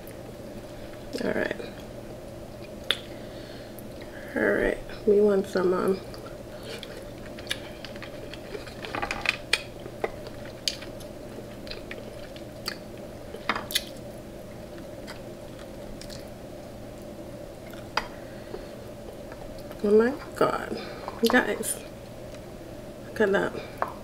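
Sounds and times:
person chewing with wet smacks: 9.5s - 14.0s, 15.0s - 16.3s.

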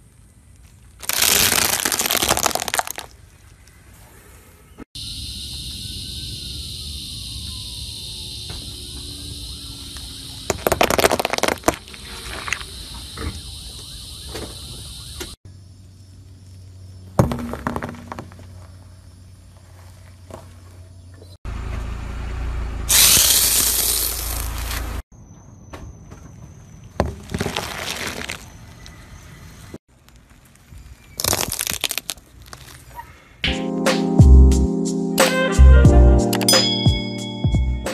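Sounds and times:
scattered crackles: 0.5s - 3.2s, 10.5s - 12.8s, 29.9s - 33.0s
foam crunching under tyre: 1.0s - 3.2s, 10.5s - 12.8s, 27.0s - 29.0s, 29.9s - 33.0s
paintballs bursting under tyre: 1.0s - 3.2s, 10.5s - 12.0s, 31.2s - 32.9s.

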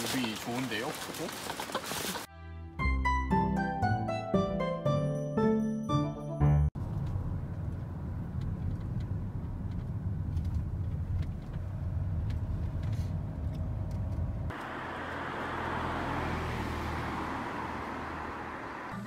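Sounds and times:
car cabin road noise: 6.8s - 19.0s.

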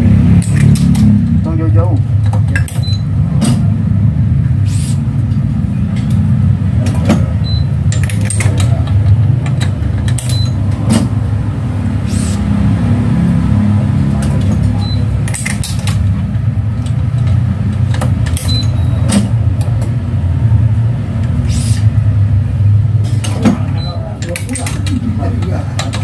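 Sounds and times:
steady low rumble: 0.0s - 26.0s
short high beeps: 14.8s - 15.1s.

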